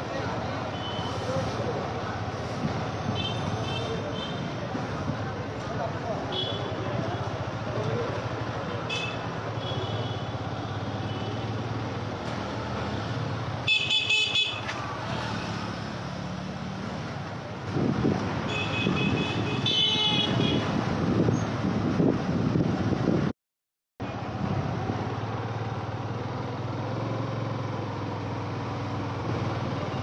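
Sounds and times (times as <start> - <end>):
engine and road rumble: 0.0 - 23.3, 24.0 - 30.0
vehicle horns honking: 13.7 - 14.7, 18.5 - 20.7.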